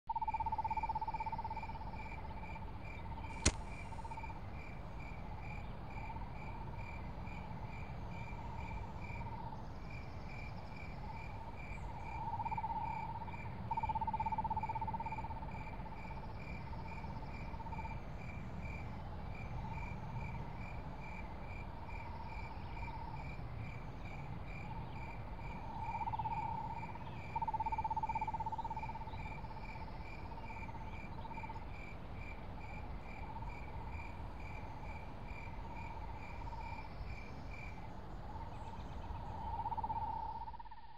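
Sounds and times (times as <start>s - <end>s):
insect or frog trill: 0.1s - 2.2s, 11.9s - 18.0s, 25.0s - 31.6s, 39.2s - 40.9s
cricket chirping: 0.1s - 40.9s.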